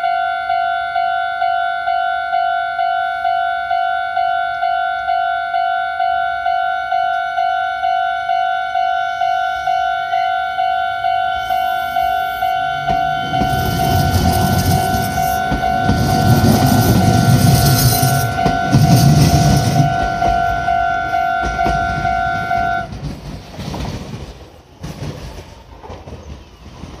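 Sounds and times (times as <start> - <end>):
crossing warning bell ringing: 0.0 - 23.0
train wheels rumbling over rails: 9.6 - 27.0.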